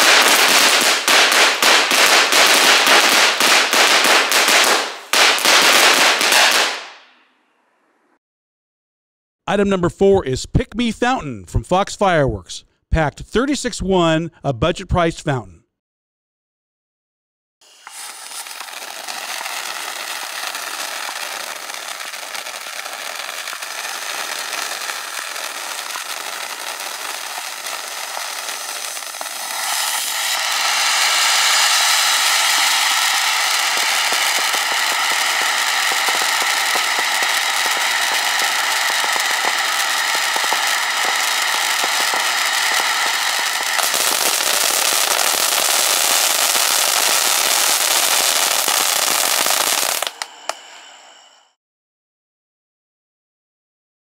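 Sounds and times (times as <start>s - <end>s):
firework fountain hissing and crackling: 0.0s - 7.1s, 17.6s - 51.6s.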